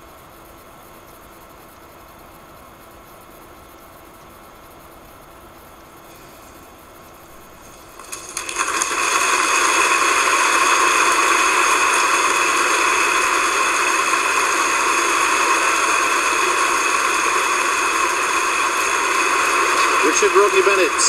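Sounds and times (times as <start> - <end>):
concert audience applauding: 8.0 - 21.0.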